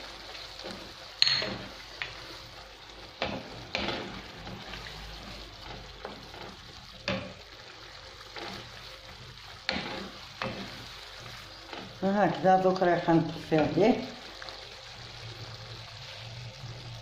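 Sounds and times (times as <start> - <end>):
meat sizzling in frying pan: 0.0 - 17.0
spatula scraping and knocking pan: 0.3 - 7.6, 8.2 - 12.0.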